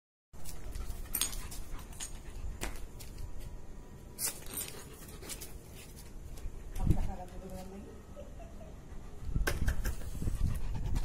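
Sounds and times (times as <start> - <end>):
leash clip clinking on tiled floor: 1.0 - 2.2.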